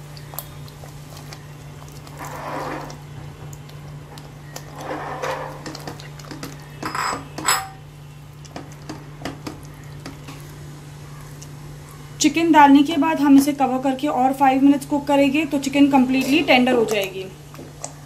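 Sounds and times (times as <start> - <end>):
spatula scraping in pot: 2.1 - 3.0, 4.6 - 5.9.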